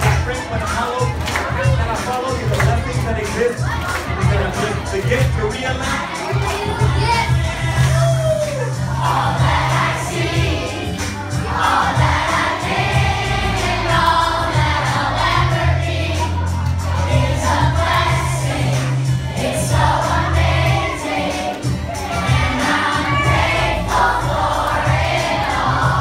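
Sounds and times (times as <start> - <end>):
song over loudspeakers: 0.0 - 26.0
children singing along: 5.8 - 26.0.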